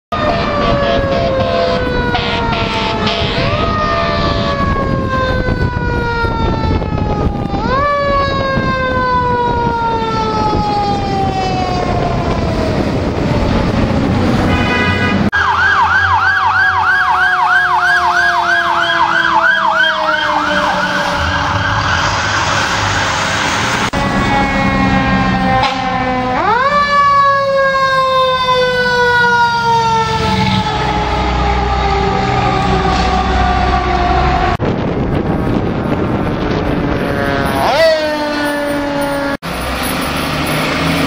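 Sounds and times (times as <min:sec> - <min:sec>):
electronic yelp siren: 0:00.1 - 0:34.6, 0:36.8 - 0:39.4.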